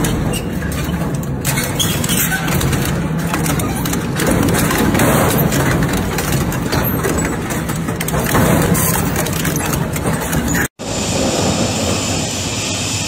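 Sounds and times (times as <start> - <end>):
metal crunching and clattering: 0.0 - 10.8
shredder machine drone: 10.8 - 13.0.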